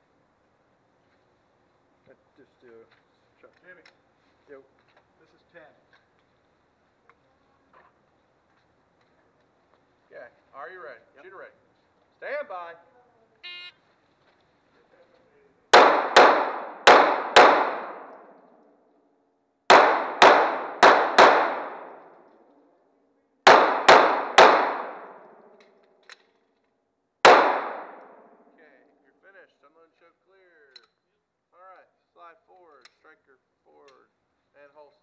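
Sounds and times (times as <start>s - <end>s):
pistol shots echoing indoors: 15.7s - 18.6s, 19.7s - 22.4s, 23.4s - 25.7s, 27.2s - 28.5s.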